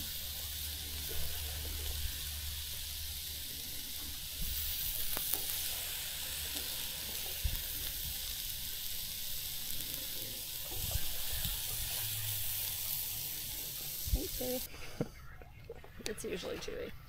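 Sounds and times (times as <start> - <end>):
meat sizzling in a pan: 0.0 - 14.7.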